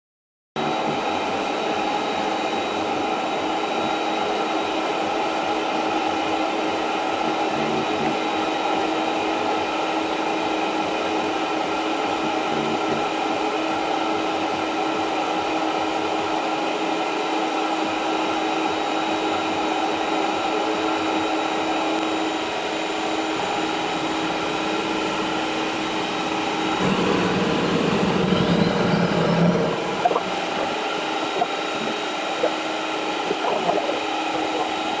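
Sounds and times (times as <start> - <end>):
jet engine whine: 0.6 - 35.0
rising whistle: 24.0 - 35.0.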